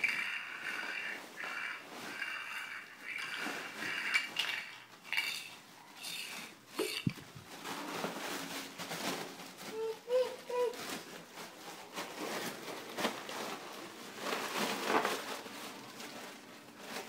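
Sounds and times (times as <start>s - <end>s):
plastic toys clattering on tile: 0.0s - 9.9s.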